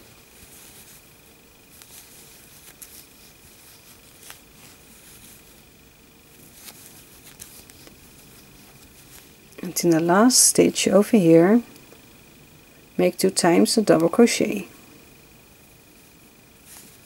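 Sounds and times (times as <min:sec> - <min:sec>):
yarn rustling: 0:00.0 - 0:11.1, 0:16.6 - 0:17.0
faint steady hum: 0:00.0 - 0:17.0.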